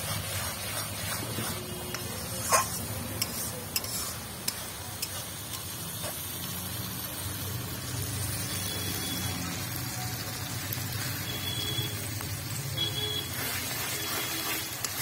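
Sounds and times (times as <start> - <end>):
spices sizzling in a pan: 0.0 - 15.0
spatula clicking against pan: 1.9 - 5.8.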